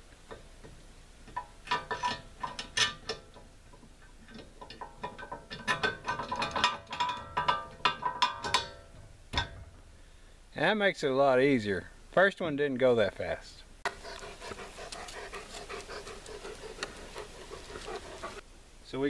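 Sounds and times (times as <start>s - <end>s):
metal parts clinking and scraping: 4.3s - 9.0s.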